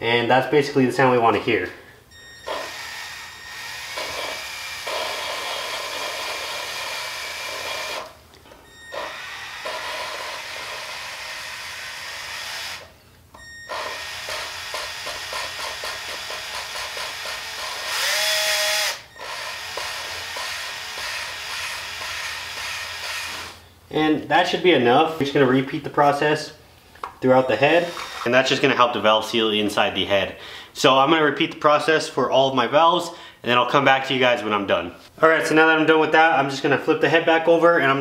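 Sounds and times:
cordless drill whining: 2.2s - 23.7s, 27.8s - 28.3s.

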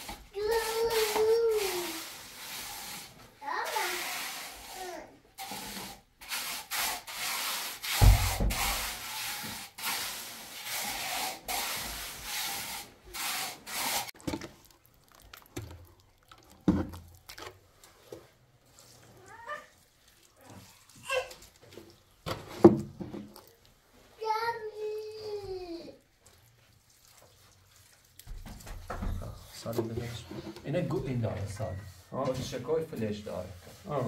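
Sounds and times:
scraping in mortar and stone: 0.0s - 23.6s.

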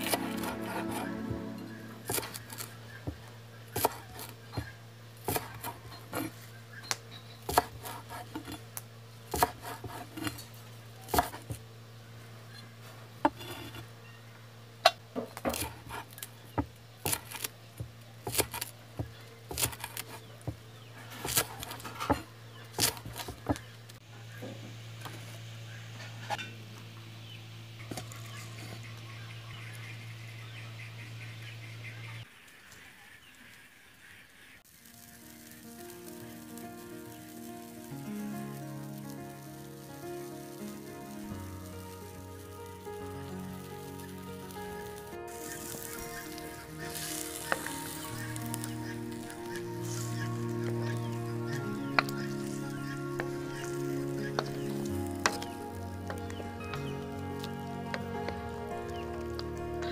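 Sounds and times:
knife chopping on wooden block: 5.3s - 6.3s, 7.5s - 8.6s, 9.3s - 10.3s, 11.1s - 11.6s, 18.3s - 20.2s, 21.2s - 23.6s.

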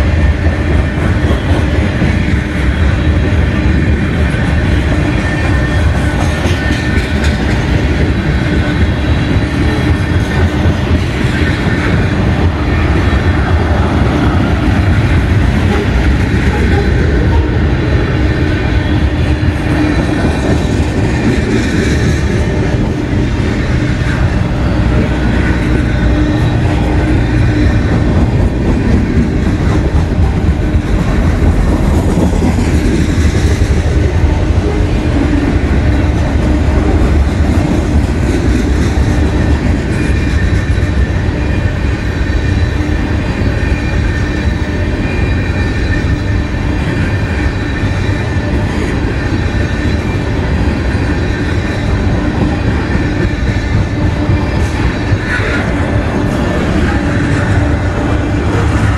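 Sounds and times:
freight train wheels rumbling on rail: 0.0s - 58.9s
high wheel squeal: 38.7s - 58.9s.

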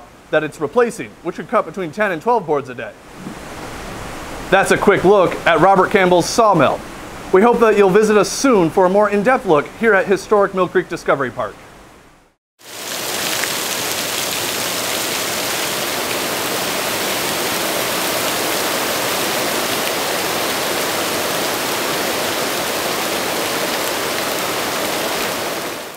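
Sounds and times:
water splashing onto rocks: 12.7s - 25.8s.

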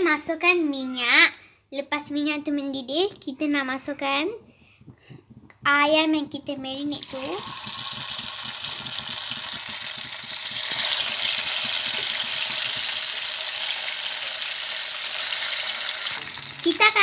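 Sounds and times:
hot oil sizzling in a frying pan: 7.0s - 17.0s.

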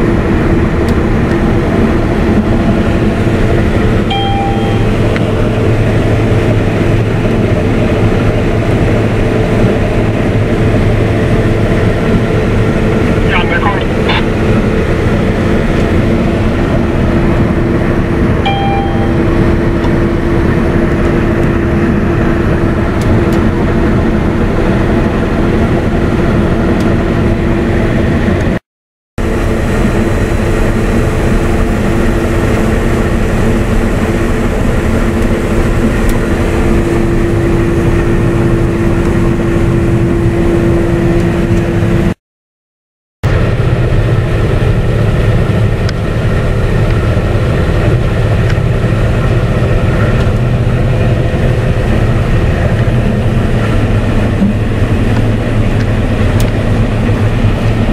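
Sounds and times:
combine harvester droning: 0.0s - 28.6s, 29.2s - 42.2s, 43.3s - 57.9s
short beep: 4.1s - 5.0s, 18.5s - 19.3s.

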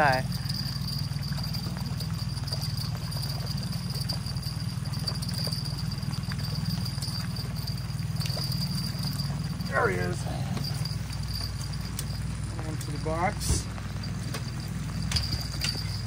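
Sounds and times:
outboard motor running: 0.0s - 16.0s
faint ticks: 0.3s - 9.8s, 10.5s - 12.9s.

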